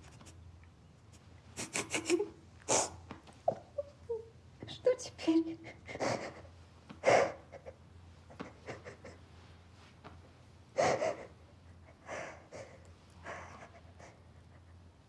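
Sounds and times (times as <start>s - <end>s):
person sobbing and gasping: 1.6s - 4.3s, 5.6s - 9.2s, 10.8s - 14.8s.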